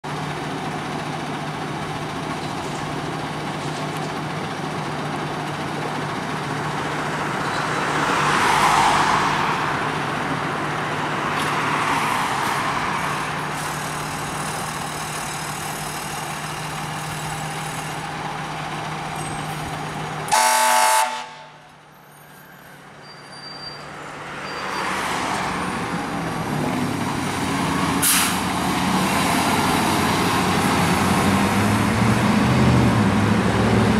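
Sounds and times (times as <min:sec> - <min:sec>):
fire engine idling: 0:00.0 - 0:07.6, 0:13.0 - 0:22.3
fire engine driving off: 0:00.0 - 0:33.9
horn blast: 0:20.3 - 0:21.6.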